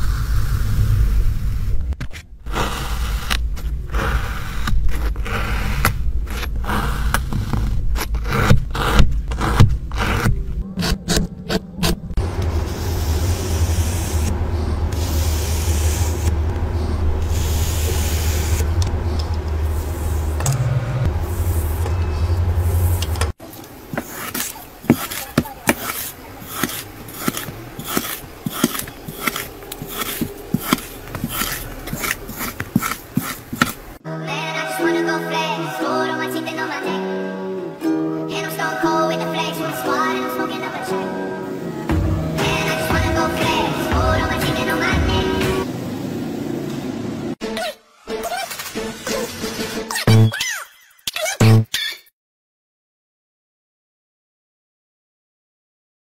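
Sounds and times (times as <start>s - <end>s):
metal tools scraping kinetic sand: 23.9s - 34.0s.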